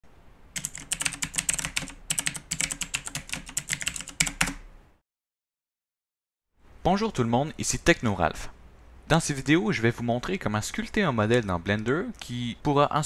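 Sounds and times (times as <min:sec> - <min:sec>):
keyboard typing: 0:00.6 - 0:04.6.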